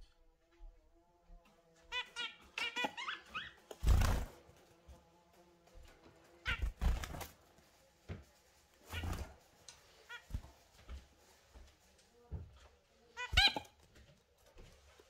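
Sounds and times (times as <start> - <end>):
small birds chirping: 1.8 - 4.2, 13.1 - 13.8
birds fluttering and thumping: 1.9 - 11.7.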